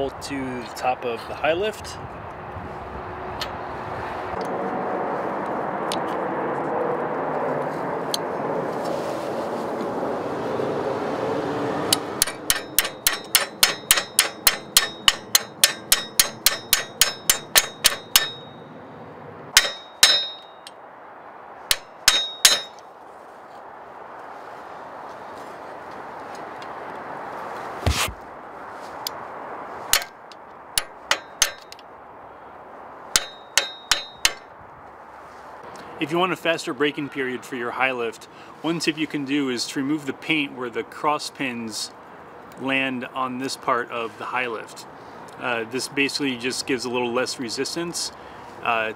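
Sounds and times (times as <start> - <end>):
metal pin hammered ringing taps: 11.9 - 18.6, 19.6 - 20.8, 21.7 - 22.8, 29.9 - 30.1, 30.8 - 31.8, 33.2 - 34.5.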